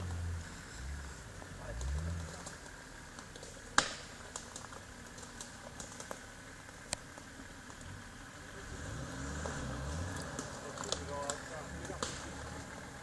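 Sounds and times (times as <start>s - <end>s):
off-road vehicle engine: 0.0s - 13.0s.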